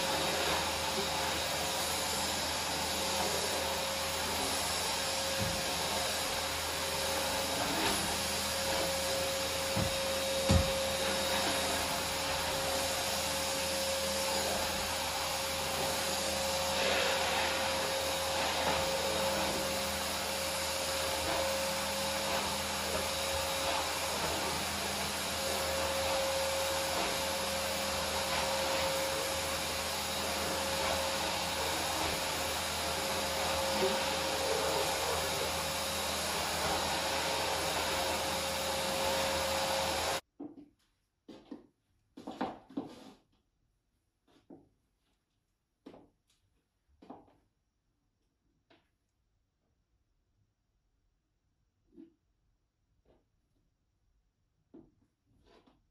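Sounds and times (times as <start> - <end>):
vacuum cleaner running: 0.0 - 40.3.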